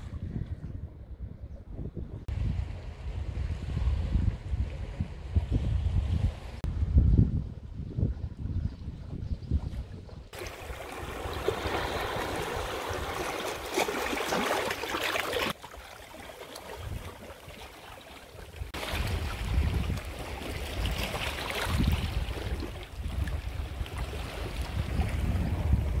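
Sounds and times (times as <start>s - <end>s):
wind on microphone: 0.0s - 14.5s, 16.6s - 17.6s, 18.3s - 26.0s
waves splashing on rocks: 10.4s - 15.6s.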